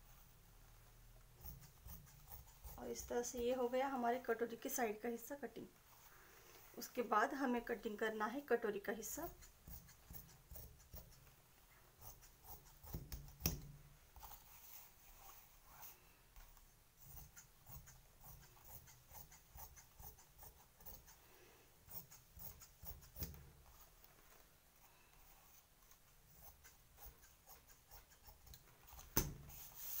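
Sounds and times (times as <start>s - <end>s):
scissors snipping fabric: 1.4s - 3.5s, 9.2s - 11.3s, 12.0s - 13.8s, 21.9s - 23.5s.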